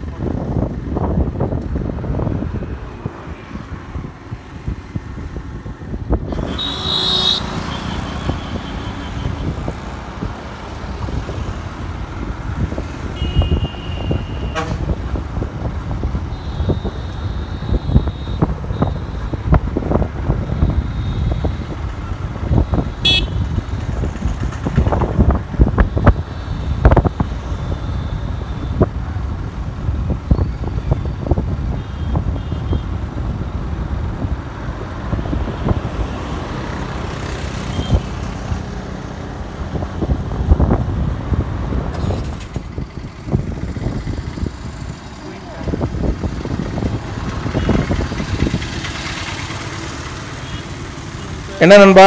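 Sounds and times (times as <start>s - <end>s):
wind buffeting microphone: 0.0s - 6.6s, 9.2s - 50.1s
low road rumble: 0.0s - 52.0s
vehicle horn toots: 6.4s - 9.4s, 13.2s - 14.9s, 23.0s - 23.5s.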